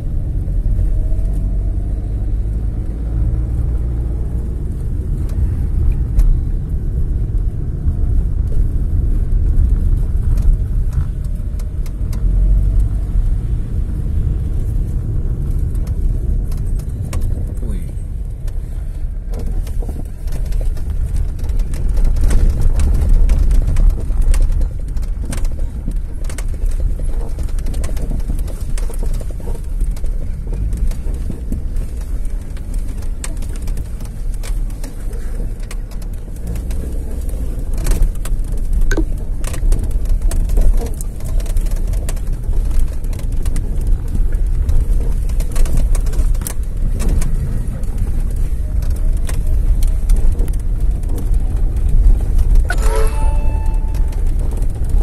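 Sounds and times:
vehicle rumbling on road: 0.0 - 55.0
small knocks and rattles: 18.4 - 52.7.

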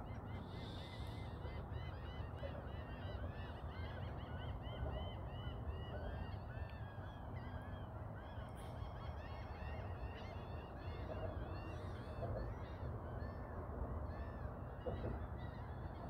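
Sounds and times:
flock of birds calling: 0.0 - 13.4.

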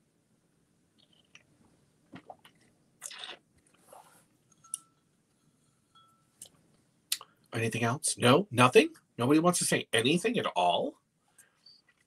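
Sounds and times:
person sipping from mug: 2.2 - 4.2.

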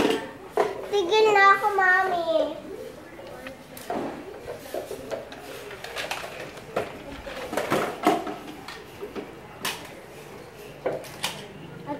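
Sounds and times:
plastic toys knocking and clattering: 0.0 - 1.1, 3.8 - 10.0.

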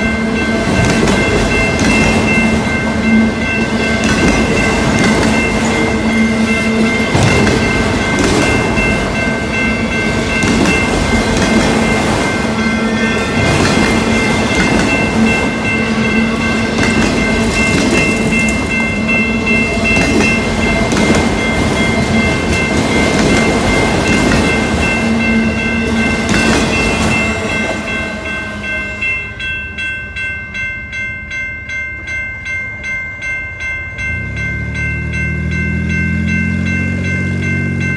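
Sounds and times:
train wheels clattering over rails: 0.0 - 28.0
crossing bell ringing: 0.0 - 37.9
car engine: 34.2 - 37.8.

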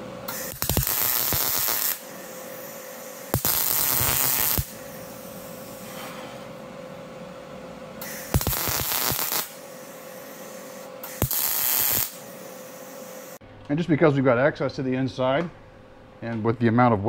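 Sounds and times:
welding arc crackling: 0.3 - 5.9, 8.0 - 13.4.

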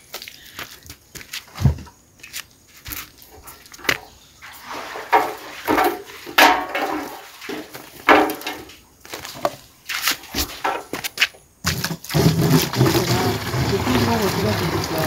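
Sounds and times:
water pouring out: 4.4 - 8.7, 11.8 - 15.0
jerrycan knocking and scraping in well: 4.4 - 8.8, 11.6 - 15.0.

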